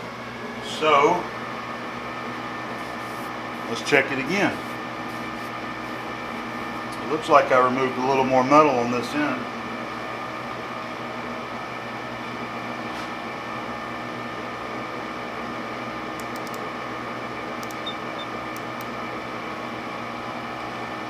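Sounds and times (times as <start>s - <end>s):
machine hum: 0.0s - 21.0s
micrometer clicks: 16.2s - 16.6s, 17.6s - 18.9s.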